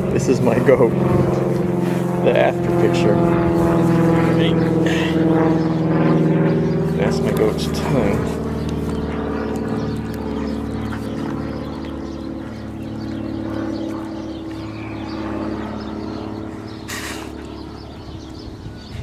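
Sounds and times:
steady motor drone: 0:00.0 - 0:19.0
dog chewing: 0:08.4 - 0:14.7.

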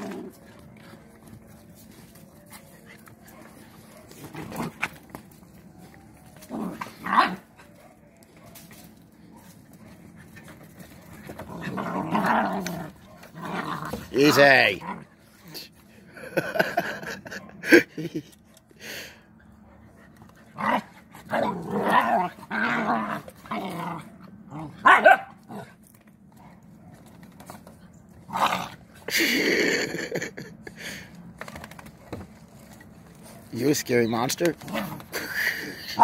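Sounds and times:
puppies growling: 0:00.0 - 0:01.7, 0:09.5 - 0:15.4, 0:20.3 - 0:25.9.

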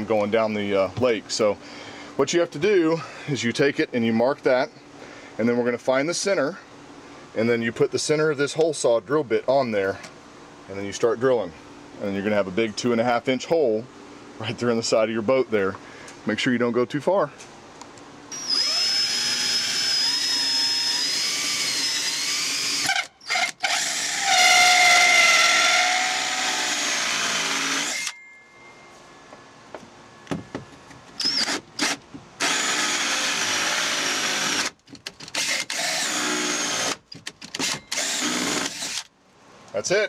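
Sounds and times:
drill with hole saw cutting: 0:18.3 - 0:28.2, 0:31.2 - 0:39.1.

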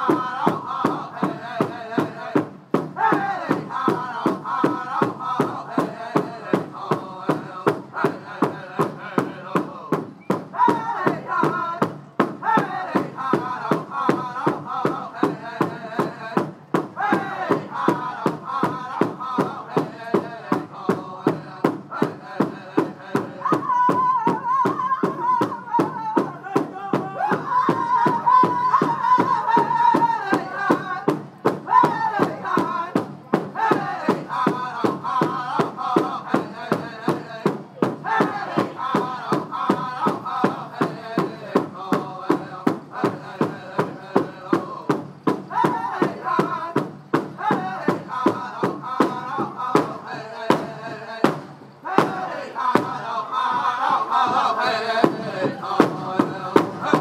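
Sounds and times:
big drum beat: 0:00.0 - 0:57.0
group singing in high voices: 0:00.0 - 0:57.0.

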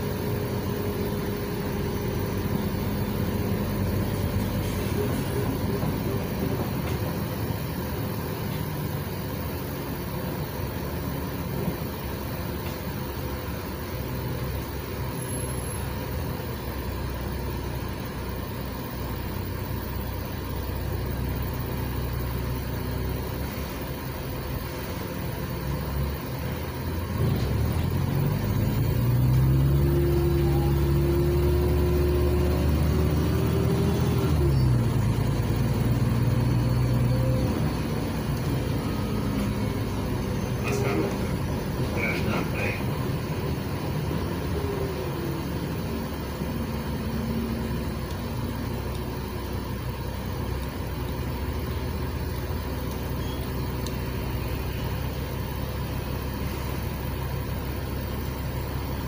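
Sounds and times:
bus engine: 0:00.0 - 0:59.0
transmission whine: 0:19.2 - 0:59.0.

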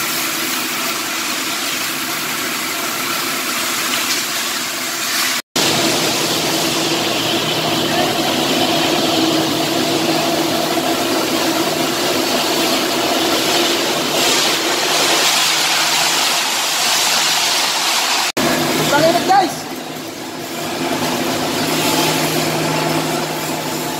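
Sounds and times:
machinery drone: 0:05.6 - 0:16.7, 0:18.4 - 0:23.9.

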